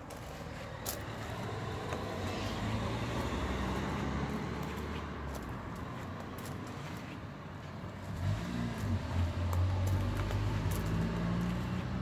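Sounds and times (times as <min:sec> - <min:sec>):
motor vehicle engine running: 0:08.0 - 0:12.0.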